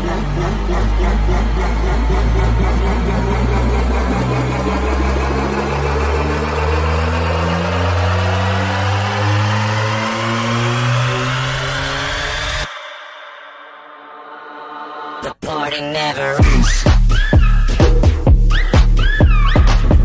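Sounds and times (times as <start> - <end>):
stepping synth bassline: 0.0 - 12.7, 16.4 - 20.0
rising synth sweep: 0.0 - 15.2.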